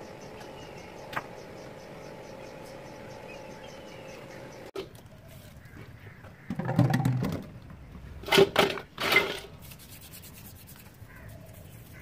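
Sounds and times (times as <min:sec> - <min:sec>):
metal parts scraping in steel bowl: 0:08.3 - 0:09.6.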